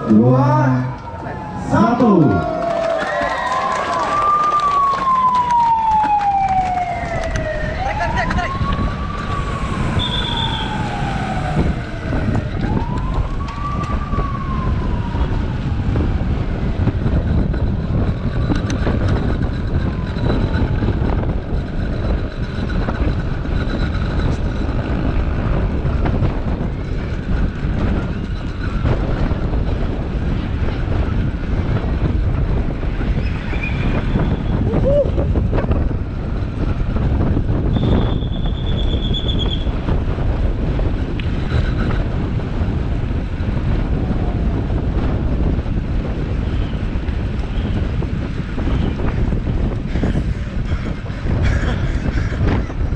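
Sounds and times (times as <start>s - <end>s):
wailing siren: 0.0s - 39.9s
wind on microphone: 0.0s - 52.9s.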